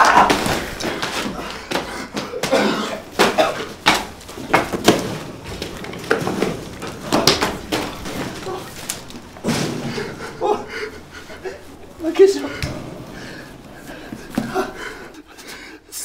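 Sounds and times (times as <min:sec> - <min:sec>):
grunts and breaths: 0:00.0 - 0:03.8, 0:09.6 - 0:16.0
scuffle knocks and thuds: 0:00.0 - 0:10.1.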